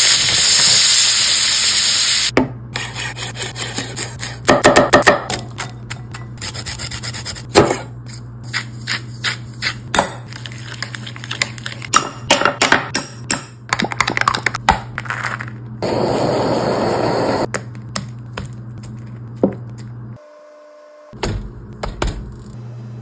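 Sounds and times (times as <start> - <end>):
knife chopping on wooden board: 4.5 - 6.3.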